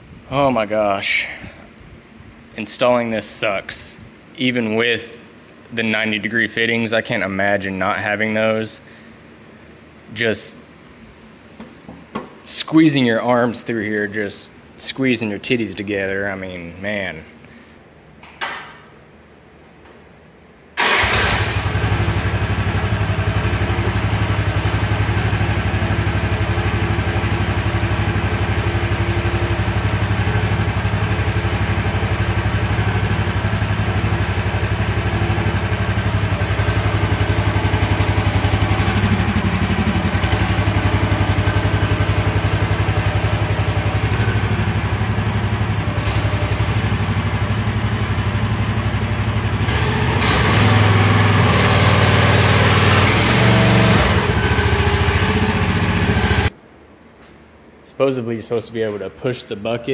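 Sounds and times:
mini excavator engine running: 0:20.9 - 0:56.5.

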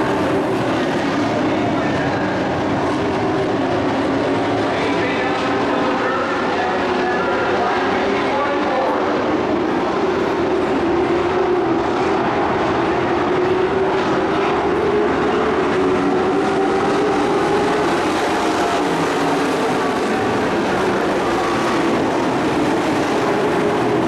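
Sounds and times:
racing truck engines droning: 0:00.0 - 0:24.0.

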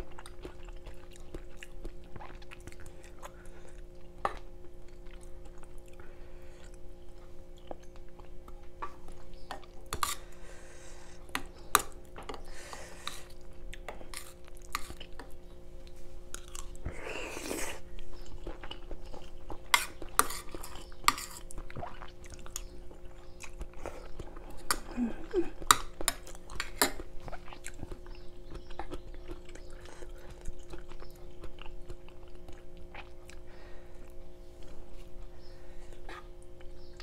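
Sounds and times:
close chewing: 0:00.0 - 0:10.4, 0:11.2 - 0:37.0
steady low hum: 0:00.0 - 0:37.0.

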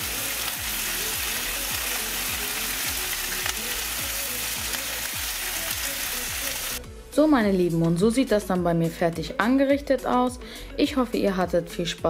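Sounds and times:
meat sizzling on a grill: 0:00.0 - 0:06.8
faint background music: 0:00.0 - 0:12.0.

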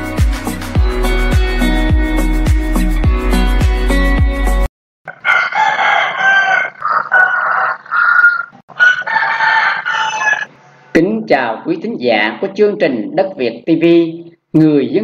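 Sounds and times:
music: 0:00.0 - 0:04.7
roosters crowing: 0:05.1 - 0:11.0.

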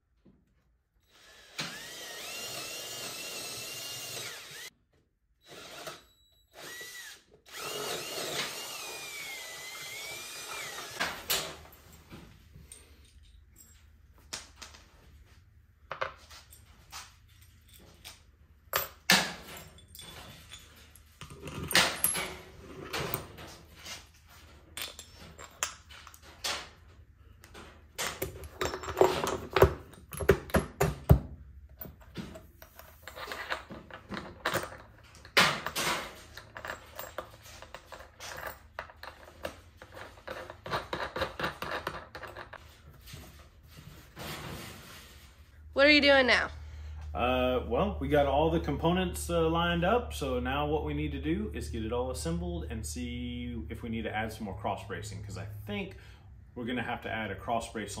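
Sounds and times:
metal hardware clinking: 0:17.3 - 0:22.4.

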